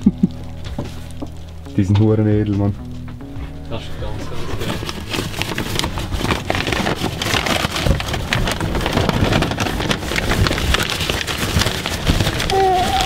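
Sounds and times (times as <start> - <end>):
paper wrapping crinkling: 3.7 - 13.0.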